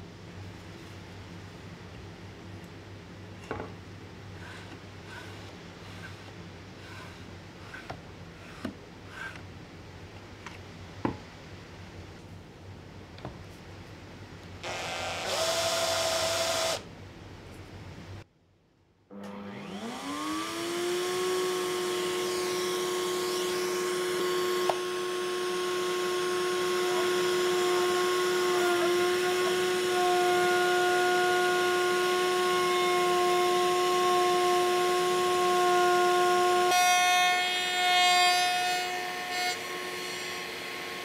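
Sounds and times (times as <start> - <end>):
power tool motor spinning: 14.6 - 16.8, 19.3 - 22.6.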